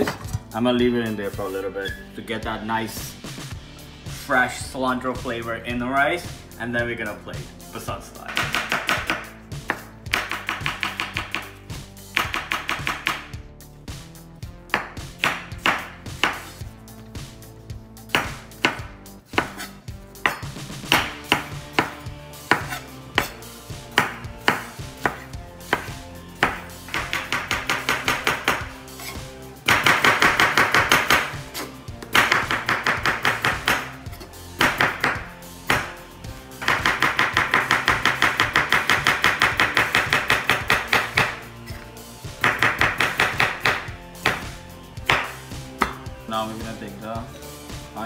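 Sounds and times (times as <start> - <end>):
knife chopping on wooden board: 8.3 - 11.5, 12.2 - 13.3, 14.7 - 16.6, 18.1 - 34.0, 34.6 - 36.0, 42.4 - 44.5, 45.1 - 46.0.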